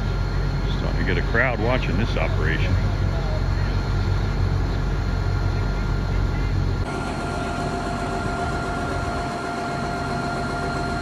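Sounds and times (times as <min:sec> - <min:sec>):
diesel engine idling: 0:00.0 - 0:11.0
thin steady whine: 0:00.0 - 0:11.0.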